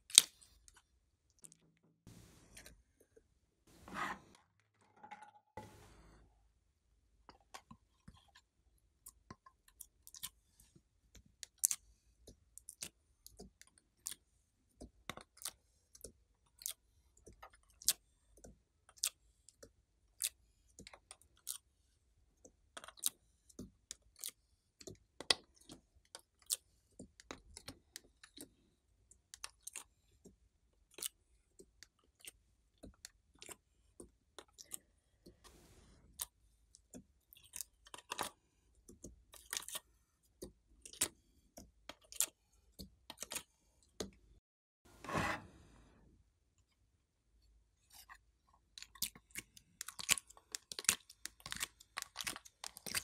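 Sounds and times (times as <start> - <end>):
brief scrape: 44.9 - 45.8
slime squishing with sticky pops: 48.8 - 53.0.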